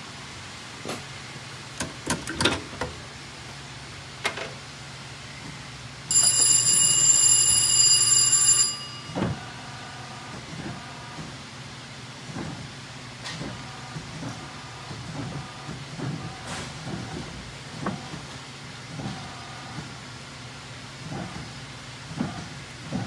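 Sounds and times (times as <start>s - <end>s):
electric warning bell ringing: 6.1s - 9.9s.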